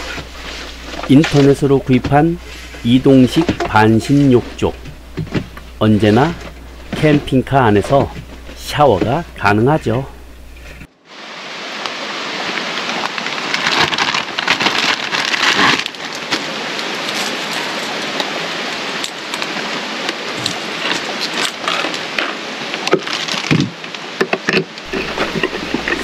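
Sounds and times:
steady rain: 0:10.3 - 0:26.0.

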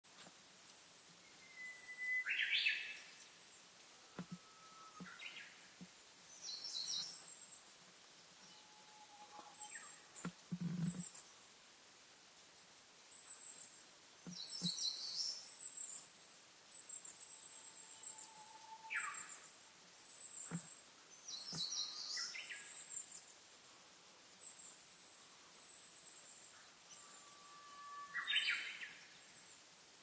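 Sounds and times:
thin high-pitched bird calls: 0:01.2 - 0:03.2, 0:16.8 - 0:19.5, 0:26.5 - 0:29.0
birds singing: 0:01.3 - 0:03.2, 0:17.4 - 0:19.4, 0:20.3 - 0:22.8, 0:26.6 - 0:29.0.

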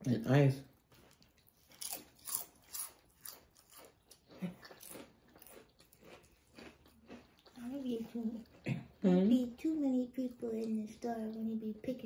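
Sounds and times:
potato chips crunching: 0:00.9 - 0:08.6.

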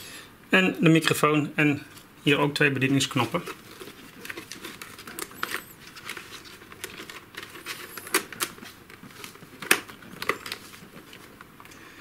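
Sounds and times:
soft rustling: 0:02.8 - 0:11.6.

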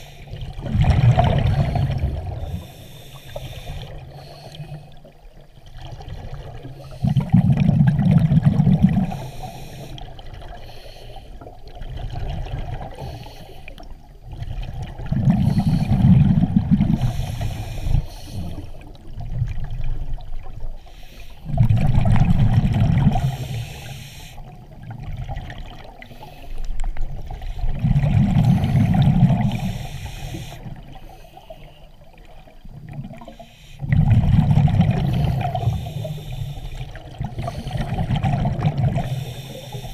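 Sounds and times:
regulator breathing underwater: 0:00.0 - 0:05.2, 0:06.7 - 0:08.0, 0:08.6 - 0:11.5, 0:12.8 - 0:13.9, 0:15.2 - 0:18.9, 0:20.8 - 0:21.8, 0:23.0 - 0:24.6, 0:26.0 - 0:32.1, 0:33.1 - 0:39.9
exhaled bubbles rushing: 0:00.3 - 0:02.6, 0:05.6 - 0:09.3, 0:11.5 - 0:13.1, 0:14.2 - 0:17.2, 0:21.5 - 0:23.4, 0:24.5 - 0:26.1, 0:27.1 - 0:29.9, 0:32.4 - 0:36.2, 0:36.8 - 0:39.4.

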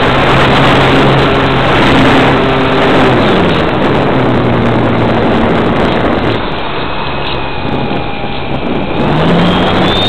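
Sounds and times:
wind rush: 0:00.0 - 0:10.0.

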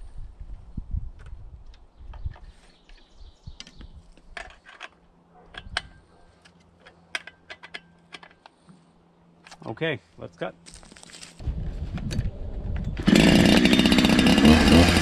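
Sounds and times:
metal tool and bolts clinking: 0:04.3 - 0:08.5.

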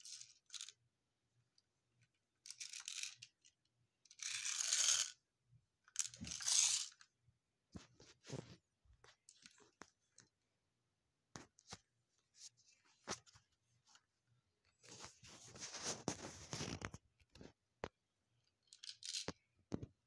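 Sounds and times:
rustling and rubbing: 0:07.8 - 0:09.8, 0:11.4 - 0:14.1, 0:14.7 - 0:17.1.

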